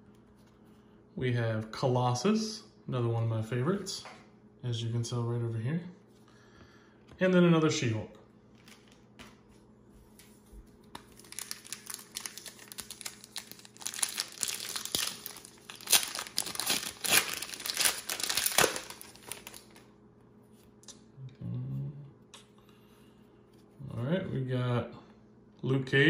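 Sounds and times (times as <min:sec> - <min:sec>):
foil wrapper tearing and crinkling: 0:11.0 - 0:19.9.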